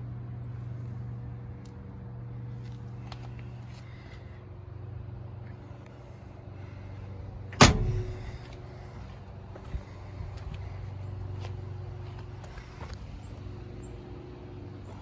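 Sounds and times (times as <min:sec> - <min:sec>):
car engine idling: 0:00.0 - 0:15.0
car door slamming: 0:07.6 - 0:08.4.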